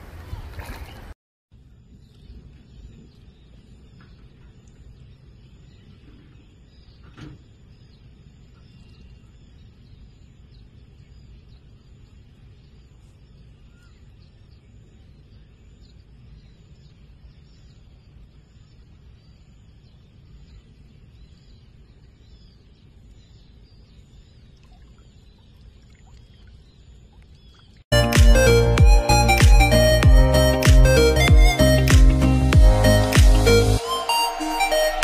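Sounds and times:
faint bird chirps: 1.6 - 27.8.

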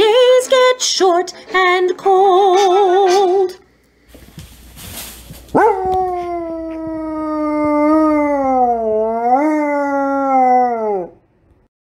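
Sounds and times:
dog howling: 5.6 - 11.2.

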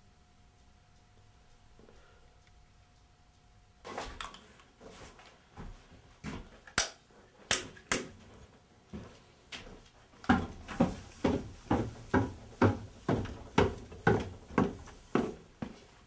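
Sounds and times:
sharp knocks and clacks: 10.2 - 15.3.

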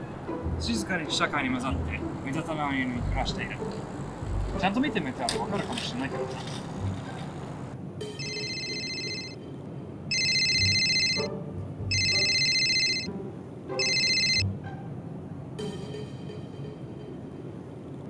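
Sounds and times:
mobile phone ringtone: 6.6 - 9.4, 10.1 - 11.3, 11.9 - 13.2, 13.8 - 14.5.

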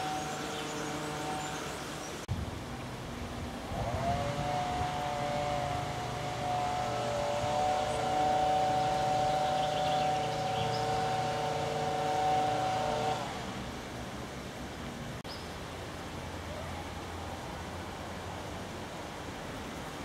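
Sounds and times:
vehicle engine running: 3.2 - 15.2.

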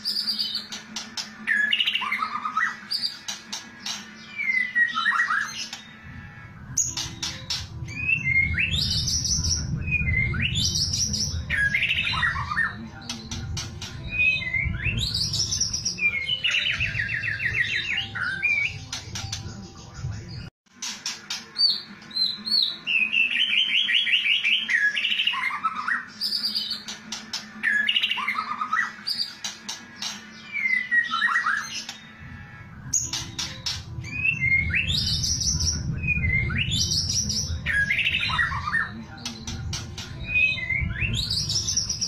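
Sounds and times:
bird singing trills and whistles: 0.0 - 6.0, 6.7 - 32.2, 32.9 - 42.0
low background rumble: 32.2 - 42.0.

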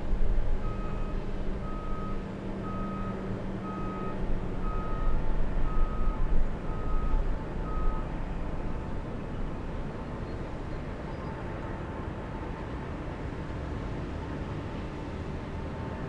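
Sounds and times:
vehicle reversing alarm beeping: 0.6 - 8.2.

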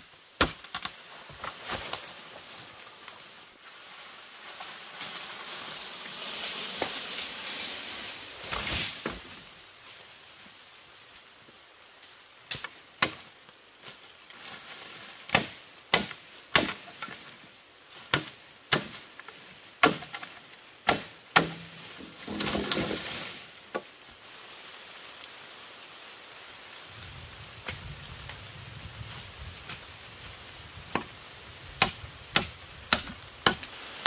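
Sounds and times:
crackling rustle: 0.0 - 34.0
wood being chopped: 0.4 - 0.9, 15.3 - 17.1, 19.8 - 23.0, 31.8 - 33.7.

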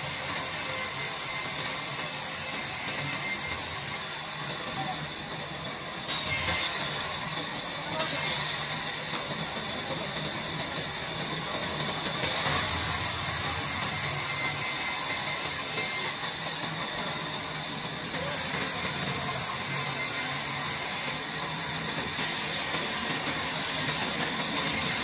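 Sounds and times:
band saw cutting wood hiss: 0.0 - 25.0.

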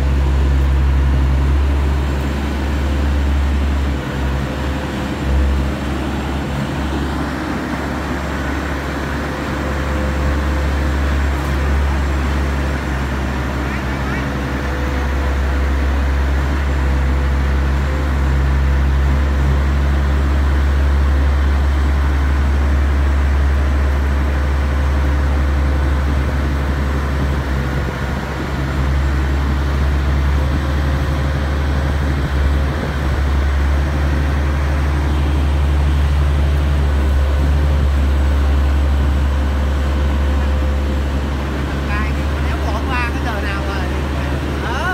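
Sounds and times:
deep diesel engine drone: 0.0 - 44.9
steady hum: 23.5 - 44.9.

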